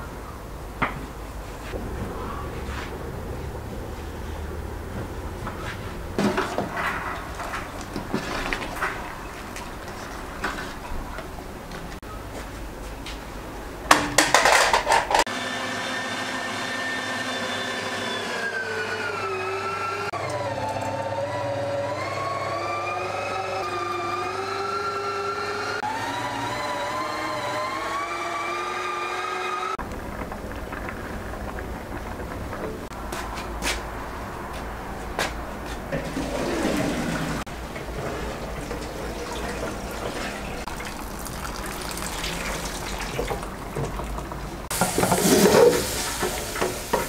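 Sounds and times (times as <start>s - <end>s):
meat grinder motor whining: 15.3s - 29.8s.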